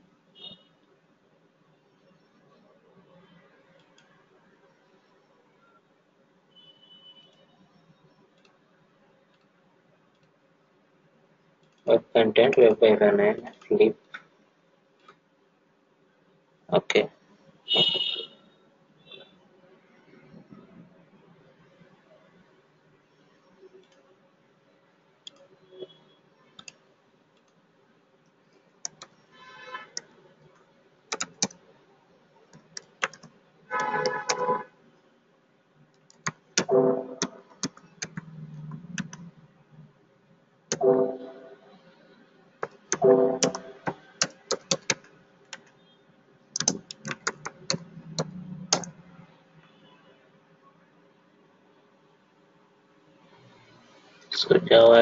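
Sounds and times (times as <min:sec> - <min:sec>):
keyboard typing: 0:26.5 - 0:26.8, 0:28.8 - 0:29.2, 0:29.9 - 0:31.6, 0:32.5 - 0:34.5, 0:35.9 - 0:39.3, 0:40.7 - 0:41.6, 0:42.6 - 0:45.8, 0:46.6 - 0:49.0
mouse clicks: 0:28.8 - 0:29.2, 0:31.1 - 0:31.6, 0:46.6 - 0:49.0.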